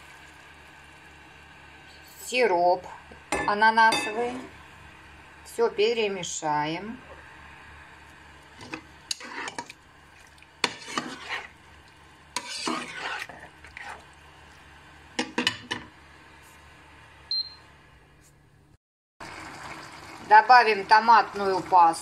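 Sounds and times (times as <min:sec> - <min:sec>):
low sizzle from pan: 0:00.0 - 0:17.9, 0:19.2 - 0:22.0
metal spatula scraping frying pan: 0:08.6 - 0:09.7, 0:10.6 - 0:11.6, 0:12.3 - 0:14.0.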